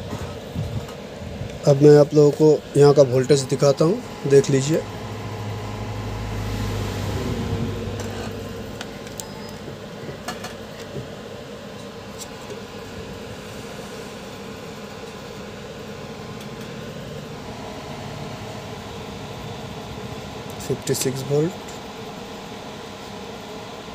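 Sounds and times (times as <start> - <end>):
amplifier electrical hum: 0.0 - 23.9
low rumble: 4.8 - 8.8.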